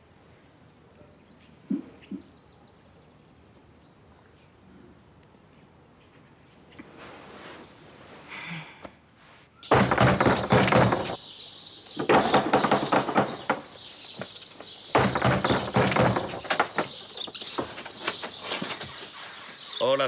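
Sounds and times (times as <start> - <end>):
birds chirping: 0.0 - 20.0
heavy knocking on wooden door: 9.7 - 11.2, 12.1 - 13.8, 14.9 - 17.8.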